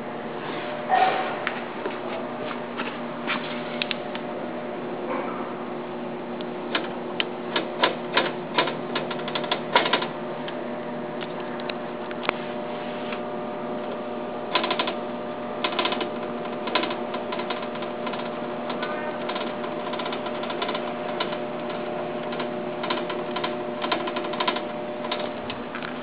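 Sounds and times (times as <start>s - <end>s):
drill press motor hum: 3.6s - 26.0s
sharp clicking and rattling: 6.7s - 10.1s, 14.5s - 15.0s, 15.6s - 26.0s.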